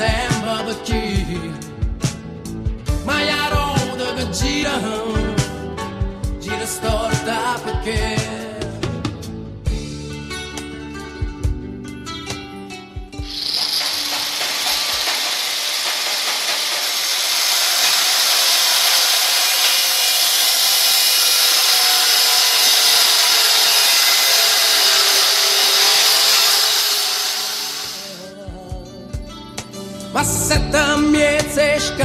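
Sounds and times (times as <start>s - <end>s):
grinder disc grinding metal: 13.2s - 28.3s.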